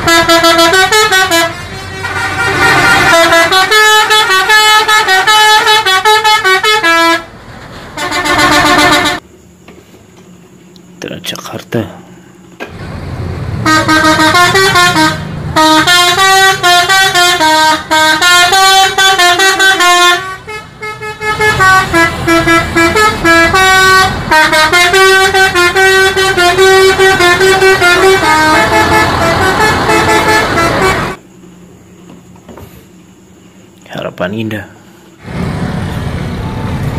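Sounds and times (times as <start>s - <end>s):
multi-tone bus horn playing a tune: 0.0s - 7.3s, 7.9s - 9.2s, 13.6s - 31.2s.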